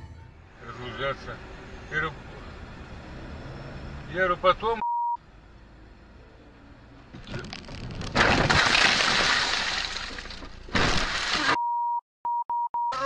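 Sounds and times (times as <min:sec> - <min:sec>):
car crash impact: 0:07.2 - 0:11.6
glass shattering: 0:08.0 - 0:11.6.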